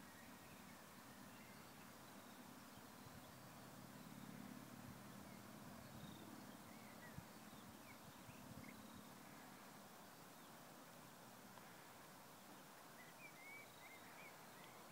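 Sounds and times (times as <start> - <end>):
faint bird chirps: 5.2 - 10.6, 11.8 - 14.9.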